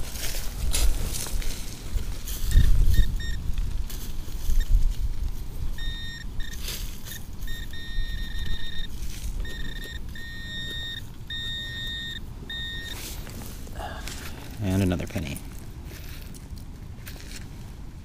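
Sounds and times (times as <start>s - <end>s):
metal detector beeps: 2.4s - 4.8s, 5.7s - 13.2s.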